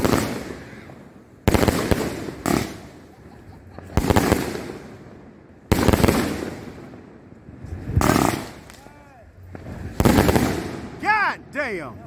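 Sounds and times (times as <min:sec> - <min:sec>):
firework shots with cracks: 0:00.0 - 0:11.3.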